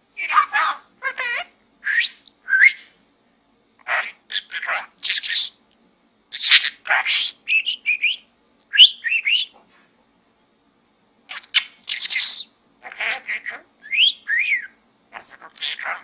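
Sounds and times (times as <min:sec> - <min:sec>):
budgerigar chattering: 0:11.3 - 0:16.0.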